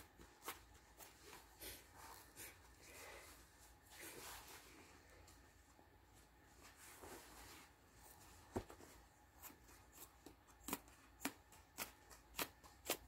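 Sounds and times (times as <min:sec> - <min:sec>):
faint cloth rustle: 0:00.0 - 0:09.7
scissors snipping cloth: 0:09.4 - 0:13.0.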